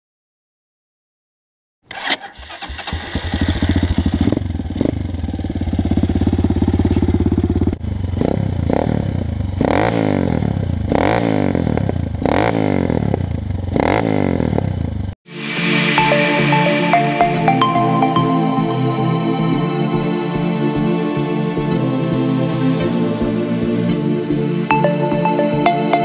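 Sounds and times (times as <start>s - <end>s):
dirt bike engine starting and idling: 1.9s - 15.1s
dirt bike engine revving: 2.3s - 15.1s.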